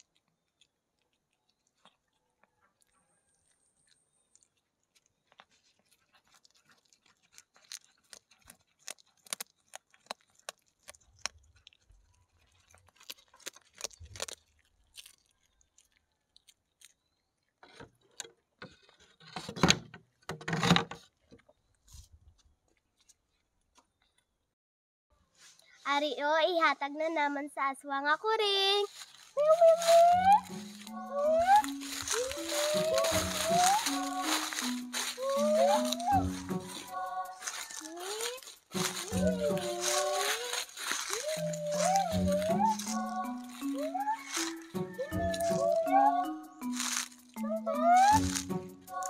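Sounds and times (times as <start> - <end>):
cat chewing: 0.0 - 17.0.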